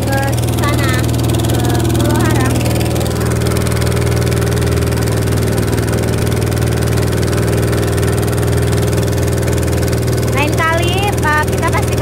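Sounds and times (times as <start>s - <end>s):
boat engine drone: 0.0s - 12.0s.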